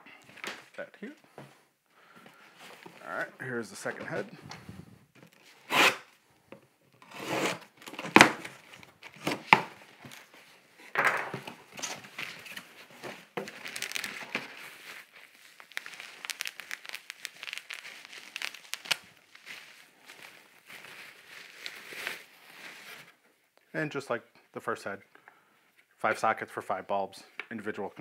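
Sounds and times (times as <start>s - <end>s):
cardboard and plastic bag rustling: 7.7s - 23.2s.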